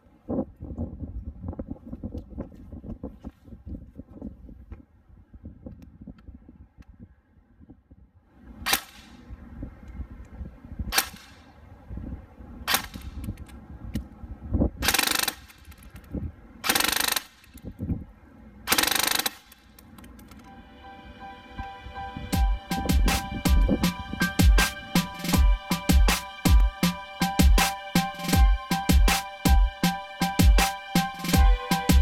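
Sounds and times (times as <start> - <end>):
airsoft rifle single shots: 12.7 - 13.3
airsoft rifle full-auto bursts: 14.9 - 15.6, 16.7 - 17.4, 18.7 - 19.6.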